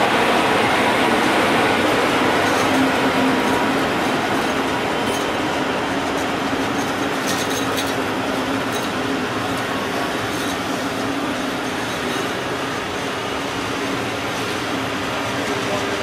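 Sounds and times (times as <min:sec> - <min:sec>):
train wheels rumbling on rail: 0:00.0 - 0:16.0
metallic clinks and squeaks: 0:06.7 - 0:08.0.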